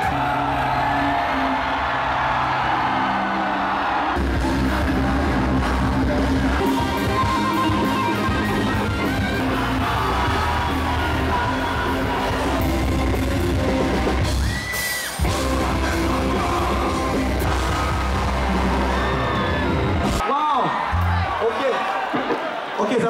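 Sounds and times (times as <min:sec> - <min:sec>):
rock band playing: 0:01.4 - 0:21.4
person singing: 0:02.9 - 0:13.8, 0:15.2 - 0:19.6.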